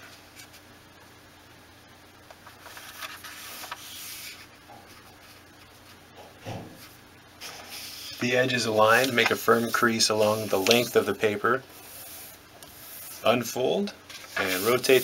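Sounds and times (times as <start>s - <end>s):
paper sliding on wooden table: 6.8s - 8.2s, 9.0s - 13.3s, 14.1s - 15.0s.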